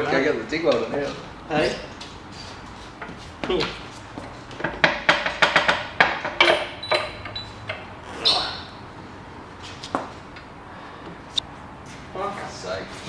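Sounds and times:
knocks: 4.6s - 7.1s
metal tools clattering: 5.4s - 7.5s.

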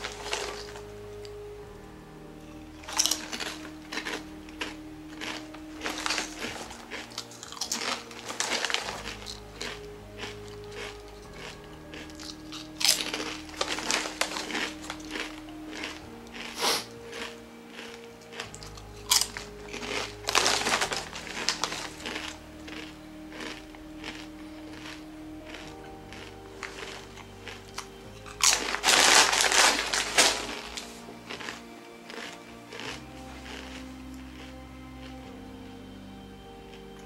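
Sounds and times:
chewing crunchy chips: 0.0s - 1.4s, 2.7s - 35.3s
soft background music: 0.0s - 37.0s.

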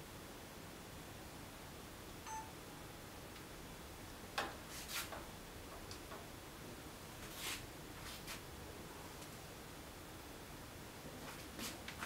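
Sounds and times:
short electronic beep: 2.3s - 2.5s.

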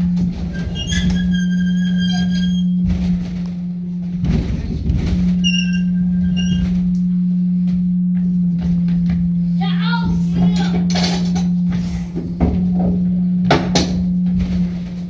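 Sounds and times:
rope tackle squeaking: 0.0s - 10.8s
low hum: 0.0s - 15.0s
knocks: 12.2s - 14.7s.

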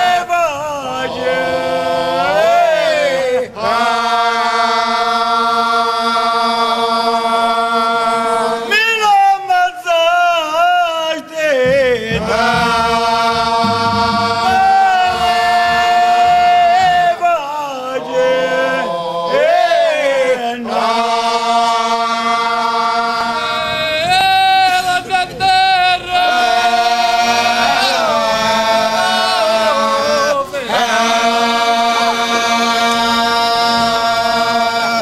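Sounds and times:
men chanting without instruments: 11.5s - 35.0s.

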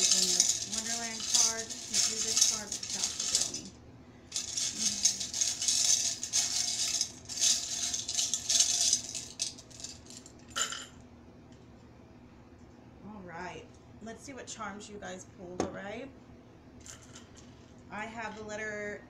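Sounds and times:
charms clattering onto table: 0.0s - 3.7s, 4.3s - 10.9s
charms rattling in wooden box: 0.0s - 10.8s.

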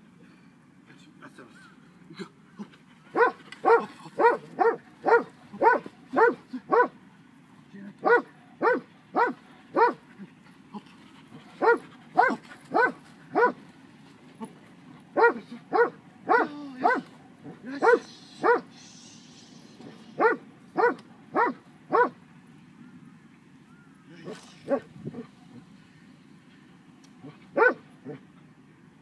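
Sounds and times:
dog barking: 3.1s - 7.0s, 8.0s - 10.0s, 11.6s - 13.6s, 15.2s - 18.7s, 20.2s - 22.2s, 24.2s - 25.3s, 27.2s - 28.2s.

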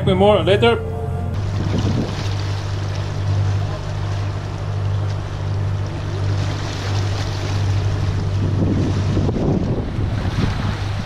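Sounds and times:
boat engine hum: 0.0s - 11.0s
water rushing in wake: 0.0s - 11.0s
wind noise: 1.3s - 2.6s, 8.2s - 11.0s.

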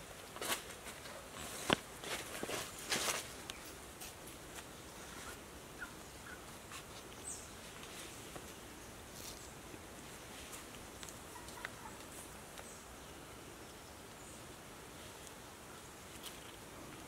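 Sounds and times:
low steady hiss: 0.0s - 17.0s
footsteps crunching on dry leaves: 0.4s - 5.4s.

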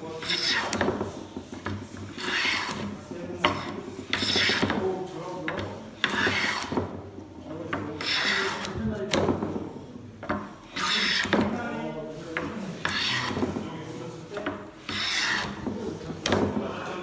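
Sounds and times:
hand plane shaving wood: 0.1s - 4.9s, 5.5s - 6.9s, 8.0s - 8.8s, 10.6s - 16.2s
plane knocking on wood: 0.2s - 11.6s, 12.3s - 16.7s.

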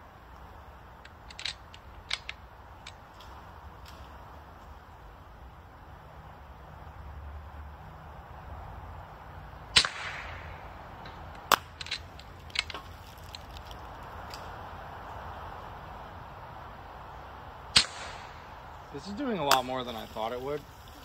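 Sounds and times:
air rifle shot cracking: 9.7s - 10.7s, 17.7s - 18.6s.

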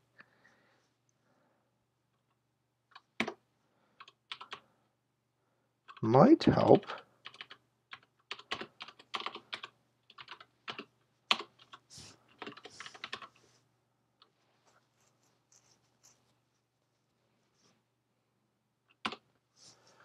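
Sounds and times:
computer keyboard typing: 2.9s - 3.4s, 4.0s - 4.6s, 7.2s - 13.4s, 18.9s - 19.2s.

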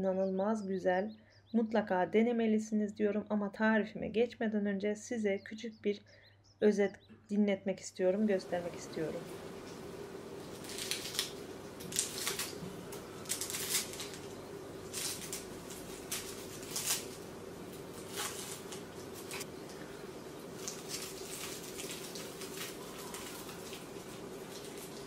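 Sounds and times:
faint steady hum: 6.1s - 25.0s
pastry crust crackling and crunching: 9.2s - 25.0s.

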